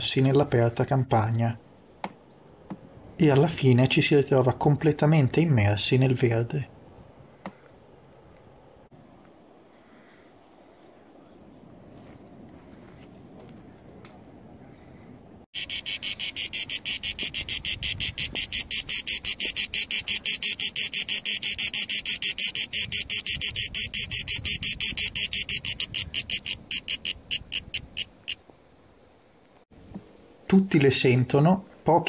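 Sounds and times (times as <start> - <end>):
cicada buzzing: 15.6 - 28.4.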